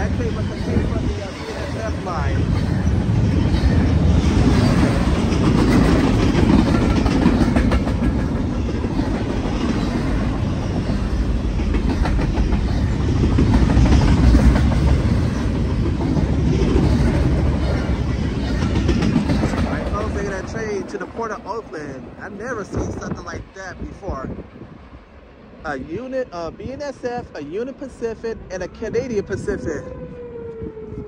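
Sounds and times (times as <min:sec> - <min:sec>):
steel wheels on rail: 0:00.0 - 0:23.2
wheels clicking over rail joints: 0:02.7 - 0:21.0.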